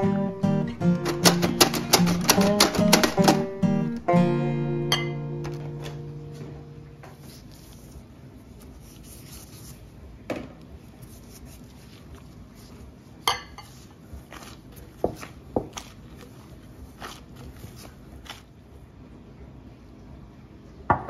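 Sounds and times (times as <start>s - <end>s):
dough kneaded by hand: 7.0s - 19.2s
clinks against glass bowl: 13.3s - 13.7s.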